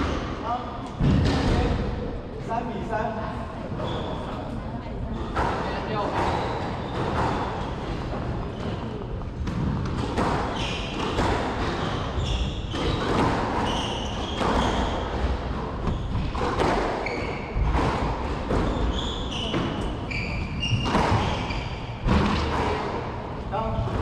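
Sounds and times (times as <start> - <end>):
shoes squeaking on court floor: 3.8 - 4.5, 5.1 - 9.2, 10.2 - 17.8, 18.5 - 22.6.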